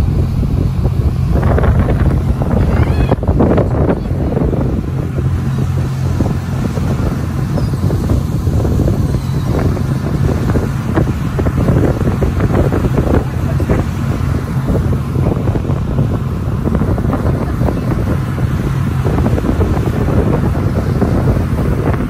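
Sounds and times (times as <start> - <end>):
boat engine drone: 0.0 - 22.0
wind buffeting microphone: 0.0 - 22.0.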